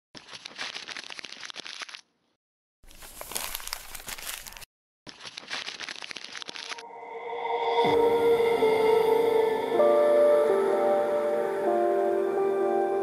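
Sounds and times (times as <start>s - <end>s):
paper crumpling: 0.2s - 2.2s, 2.8s - 6.8s.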